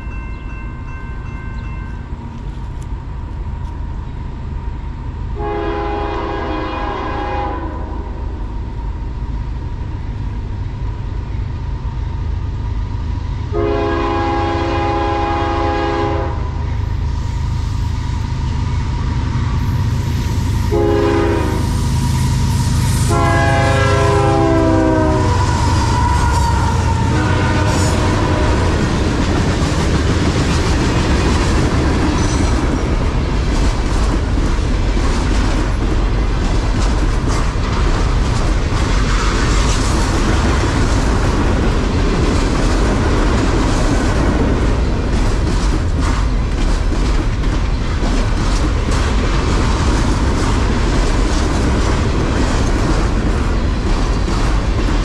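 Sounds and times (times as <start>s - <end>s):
freight train wheels rumbling: 0.0s - 55.0s
locomotive horn blast: 5.4s - 8.0s, 13.5s - 16.5s, 20.7s - 21.8s, 23.0s - 28.9s.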